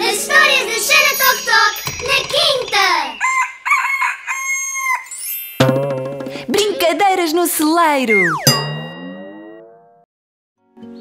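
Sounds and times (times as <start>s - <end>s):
rooster clucking: 3.2s - 5.1s
rooster crowing: 3.2s - 5.2s.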